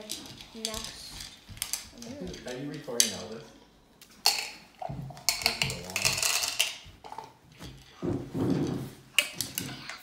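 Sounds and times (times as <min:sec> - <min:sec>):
candies clattering onto ceramic plate: 0:04.2 - 0:08.0
candies rattling in plastic cup: 0:05.3 - 0:06.8.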